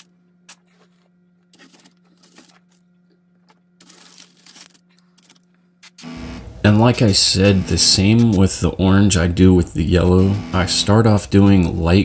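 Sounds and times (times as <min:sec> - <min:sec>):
low hum: 0:00.0 - 0:12.0
kraft paper rustling: 0:00.5 - 0:06.0.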